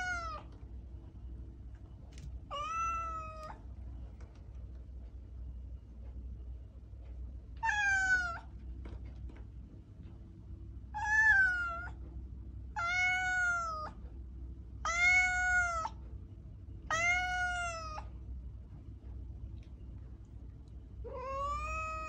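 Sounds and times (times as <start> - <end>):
cat meowing: 0.0 - 0.5, 2.5 - 3.6, 7.6 - 8.5, 10.9 - 12.0, 12.8 - 14.0, 14.8 - 16.0, 16.9 - 18.1, 21.0 - 22.0.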